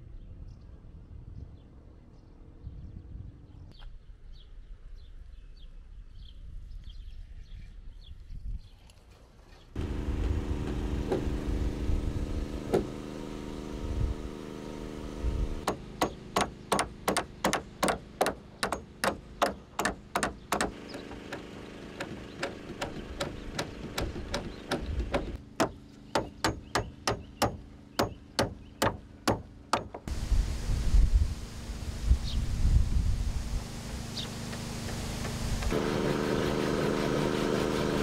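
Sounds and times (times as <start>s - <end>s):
steady low hum: 9.8s - 38.0s
hammer striking nails into wood: 15.6s - 30.1s.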